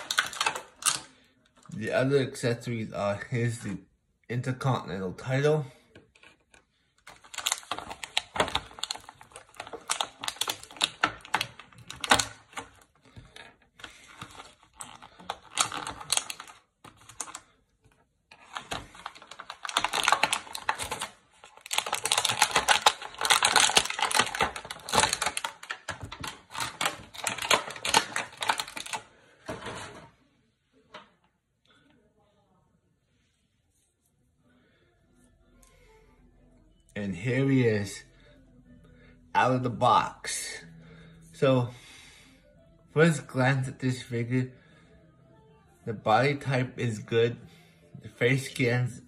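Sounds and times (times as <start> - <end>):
plastic packaging clicking and crackling: 0.0 - 1.8, 5.9 - 30.0.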